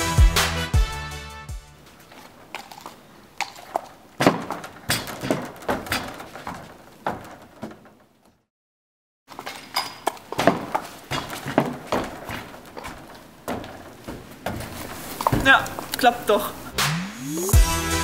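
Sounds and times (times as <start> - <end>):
hooves knocking on trailer ramp: 3.4 - 8.1, 10.3 - 15.9.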